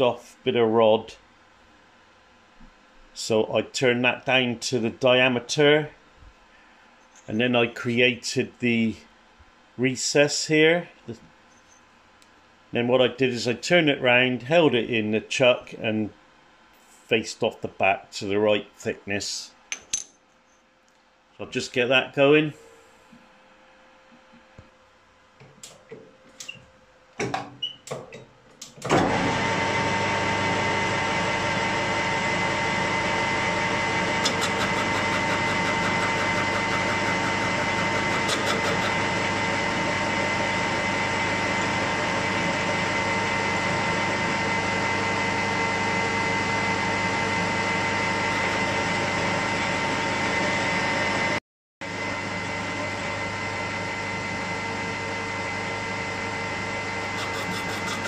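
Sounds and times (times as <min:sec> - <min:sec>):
metal lathe running: 0:29.0 - 0:51.2, 0:55.6 - 0:58.0.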